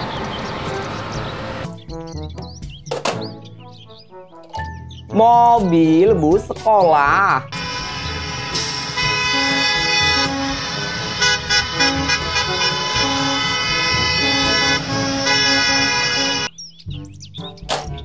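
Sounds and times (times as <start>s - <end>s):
school bus horns honking: 7.5s - 16.5s.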